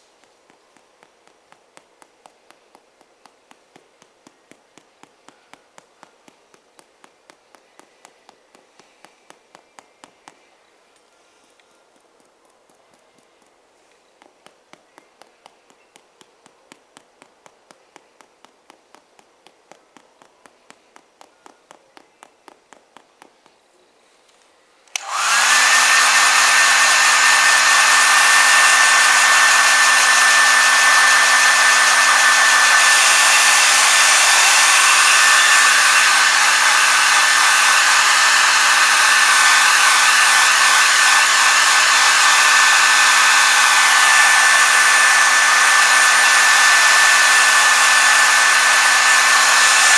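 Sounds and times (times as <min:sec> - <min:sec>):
hair dryer whining: 0:24.9 - 0:49.9.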